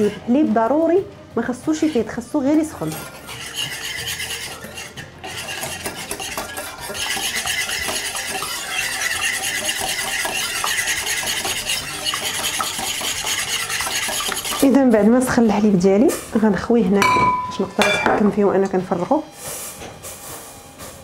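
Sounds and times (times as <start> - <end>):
whisk scraping and clinking in bowl: 0.0 - 0.4, 1.6 - 15.7, 17.0 - 18.3.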